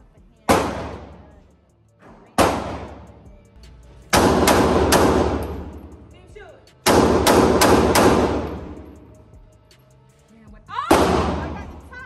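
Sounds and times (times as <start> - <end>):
pistol shots echoing indoors: 0.5 - 1.2, 2.4 - 3.2, 4.1 - 6.0, 6.8 - 9.0, 10.9 - 11.5.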